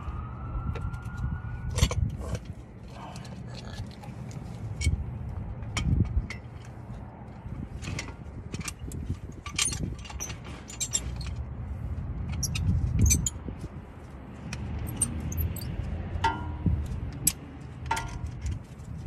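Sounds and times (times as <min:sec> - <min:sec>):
metal clamp clicking and clinking: 0:07.8 - 0:11.4, 0:12.2 - 0:13.4, 0:14.5 - 0:18.7.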